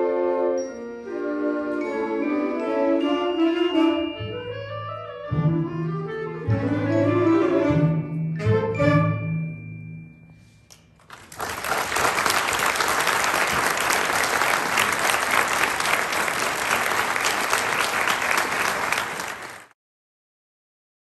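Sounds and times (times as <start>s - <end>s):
audience applause: 11.0s - 19.7s.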